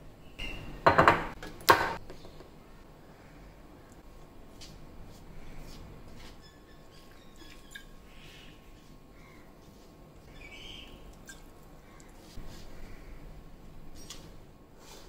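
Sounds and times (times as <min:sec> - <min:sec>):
hand mixing dough: 0:04.1 - 0:15.0.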